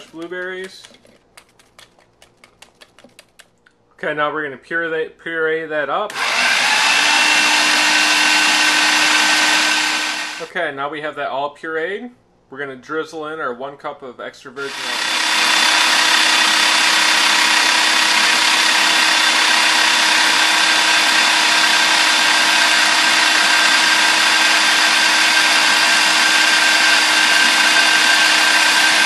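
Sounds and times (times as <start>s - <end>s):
food processor running: 6.1s - 10.5s, 14.6s - 29.0s.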